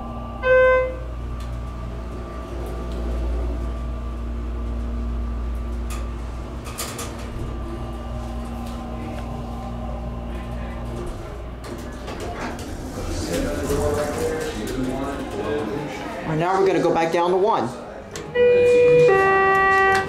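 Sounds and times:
elevator chime ding: 0.0s - 1.3s, 18.3s - 20.0s
elevator running rumble and hum: 0.0s - 20.0s
elevator rattle: 0.9s - 17.0s.

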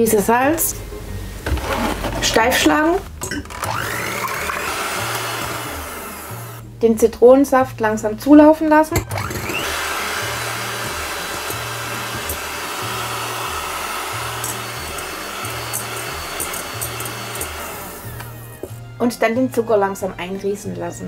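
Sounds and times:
electric hand mixer running: 3.5s - 6.6s, 9.0s - 18.8s.

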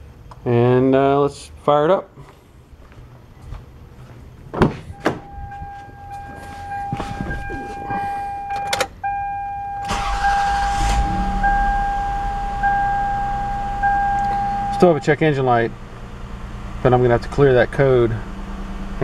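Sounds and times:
car engine starting and idling: 3.7s - 19.0s
car door clicking open: 4.6s - 6.2s, 8.5s - 9.0s
warning chime: 4.9s - 15.6s.

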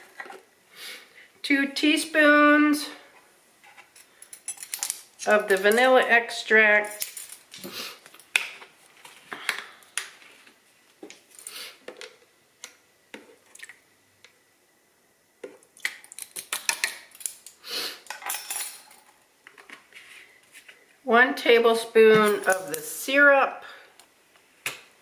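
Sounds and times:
metal measuring spoons clinking: 18.1s - 19.0s, 22.2s - 22.9s.

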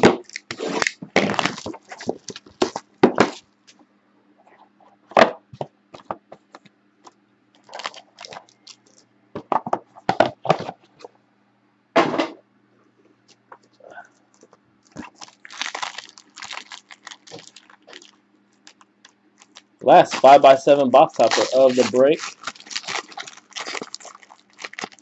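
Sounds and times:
plastic wrap crackling: 0.0s - 3.4s, 7.6s - 9.0s, 14.3s - 25.0s.

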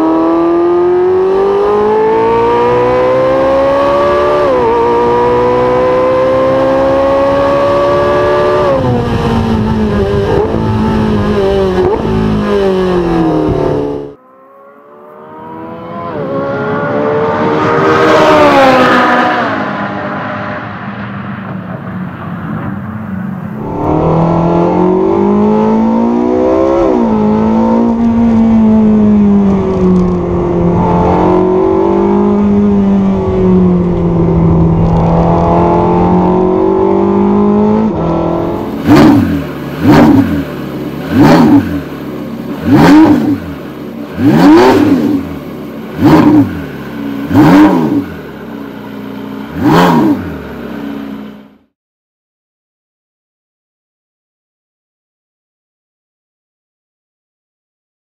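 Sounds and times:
engine revving in sharp blips: 34.8s - 51.7s.

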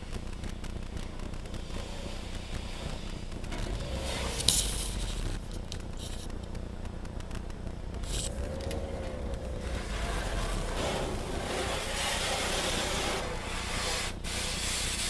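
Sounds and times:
low steady rumble: 0.0s - 15.0s
pressure washer spraying car: 9.6s - 15.0s.

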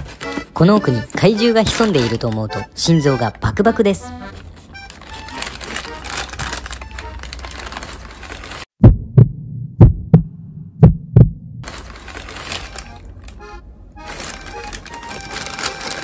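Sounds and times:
heartbeat thumps: 8.8s - 11.6s.

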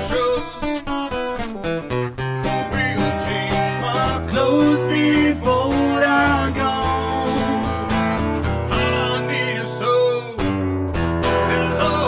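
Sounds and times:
man singing: 0.0s - 1.0s, 2.4s - 8.0s, 8.7s - 10.6s, 11.3s - 12.0s
acoustic guitar strummed: 0.0s - 12.0s.

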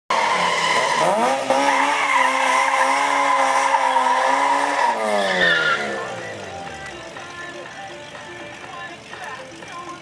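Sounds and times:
car engine revving: 0.1s - 7.2s
tyres spinning on pavement: 0.1s - 10.0s.

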